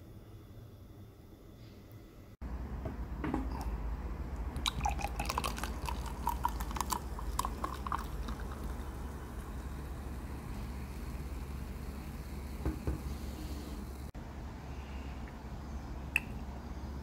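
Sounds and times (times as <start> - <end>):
soda poured over ice: 4.6 - 12.6.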